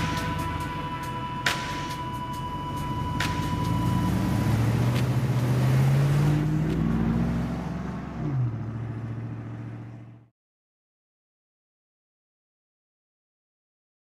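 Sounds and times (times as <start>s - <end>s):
car engine speeding up: 0.0s - 10.3s.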